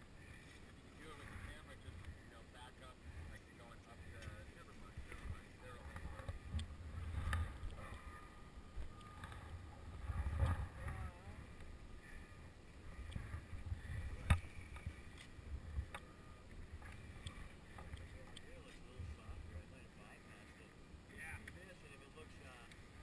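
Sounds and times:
wind rumble on microphone: 0:03.0 - 0:19.8.

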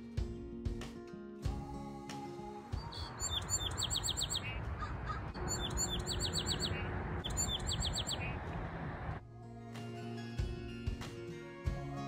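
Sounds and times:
music: 0:00.0 - 0:04.3, 0:09.2 - 0:12.0
songbird singing: 0:02.8 - 0:09.0.

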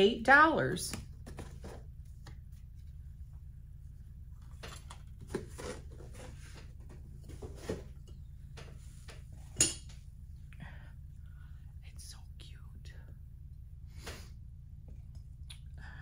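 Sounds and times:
low steady hum: 0:00.0 - 0:16.0.

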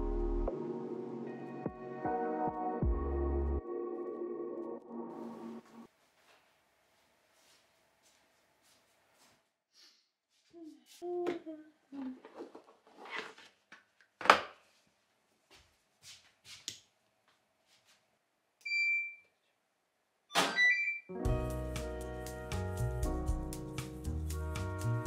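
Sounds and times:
appliance electronic beep: 0:18.6 - 0:19.3, 0:20.5 - 0:21.1.

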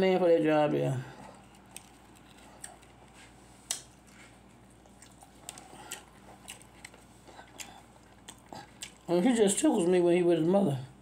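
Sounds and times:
chewing: 0:01.1 - 0:09.5.

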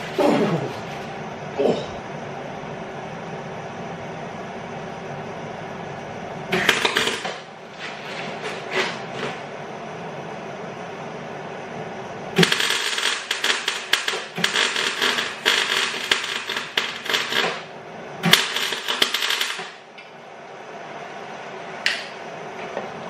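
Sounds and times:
welder crackling: 0:06.6 - 0:08.8, 0:12.4 - 0:19.8.

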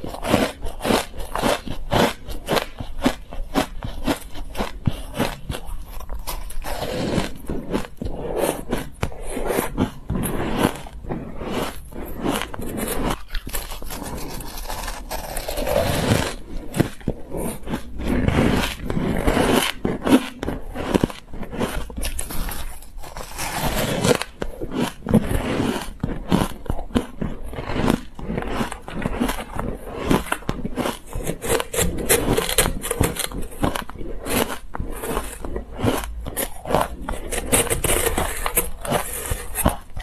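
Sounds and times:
crushed ice crunching: 0:09.2 - 0:40.0.

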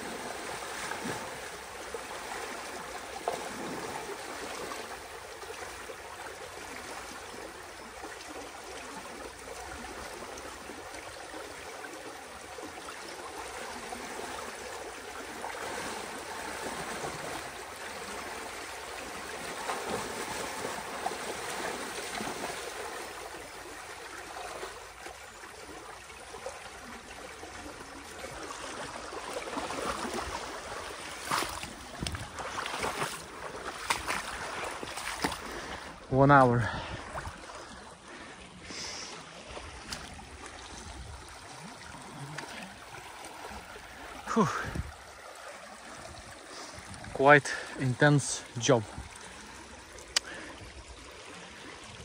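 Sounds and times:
water rushing through dam breach: 0:38.6 - 0:51.9.

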